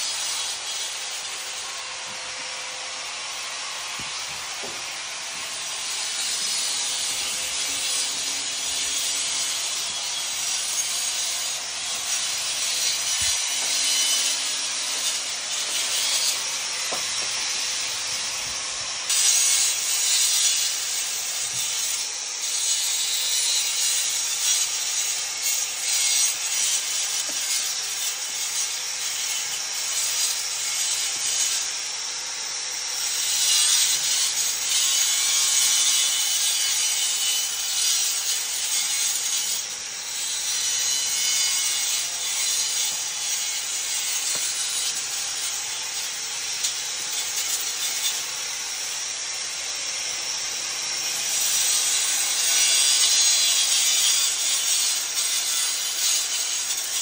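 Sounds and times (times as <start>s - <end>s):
tool abrading brickwork: 3.8s - 17.7s, 26.0s - 28.3s, 41.0s - 45.2s.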